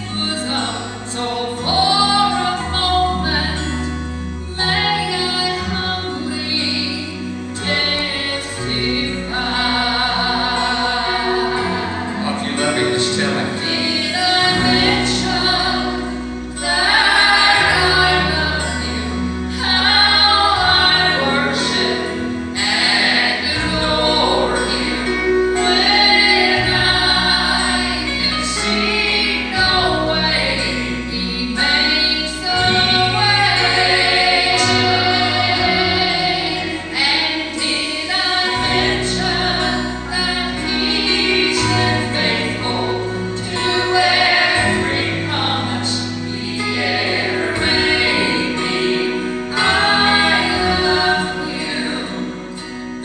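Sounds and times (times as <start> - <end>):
instrumental accompaniment: 0.0 - 53.0
woman and man singing duet: 0.0 - 53.0.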